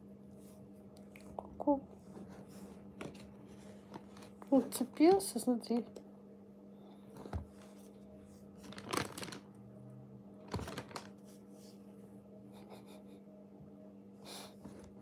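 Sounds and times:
plastic bag crinkling: 0:08.6 - 0:09.5, 0:10.4 - 0:11.2.

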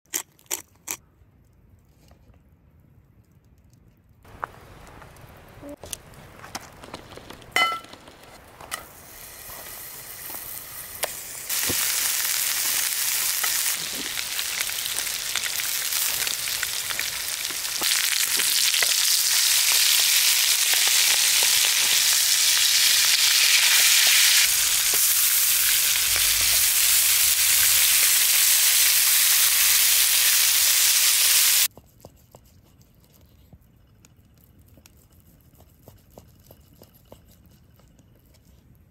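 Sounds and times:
steak sizzling in a skillet: 0:08.8 - 0:31.7.

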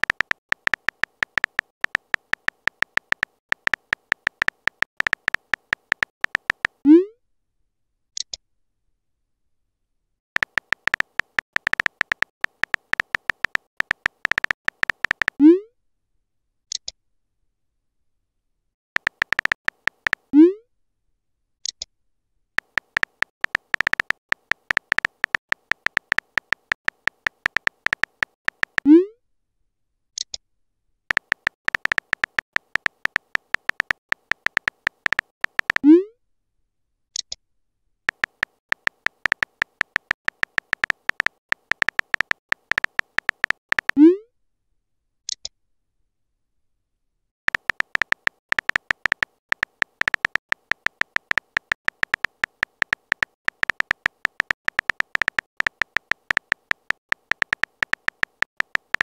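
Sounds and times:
phone keyboard typing clicks: 0:00.0 - 0:06.8, 0:10.4 - 0:15.4, 0:19.0 - 0:20.3, 0:22.6 - 0:28.9, 0:31.1 - 0:35.9, 0:38.1 - 0:44.0, 0:47.5 - 0:59.0.

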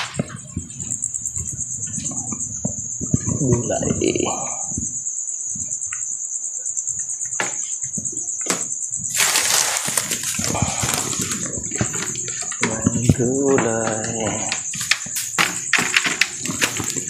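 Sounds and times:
cricket trill: 0:00.0 - 0:17.0
goods knocking in plastic crate: 0:08.5 - 0:17.0
plastic bags rustling: 0:09.1 - 0:17.0.

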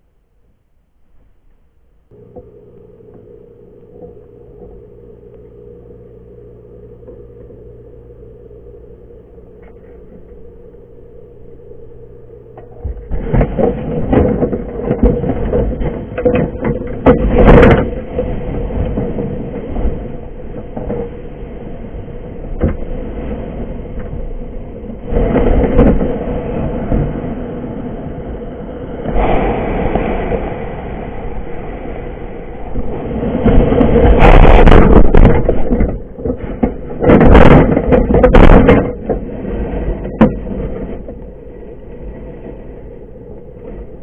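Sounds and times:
low underwater hum: 0:00.0 - 0:44.0
rumbling water noise: 0:01.9 - 0:44.0
knocks and bumps: 0:09.5 - 0:21.4, 0:32.7 - 0:44.0.

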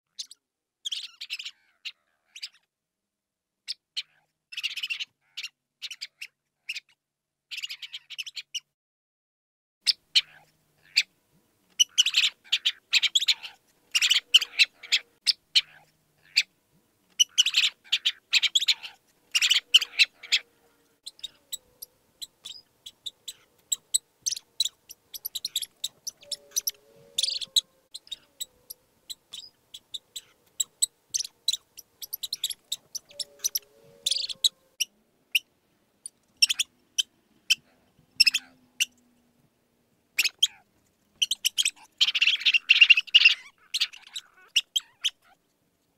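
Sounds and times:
mouse squeaking: 0:11.8 - 0:16.5, 0:17.1 - 0:20.4, 0:21.0 - 0:35.4, 0:36.0 - 0:36.7, 0:38.2 - 0:39.0, 0:40.2 - 0:40.6, 0:41.2 - 0:45.4.

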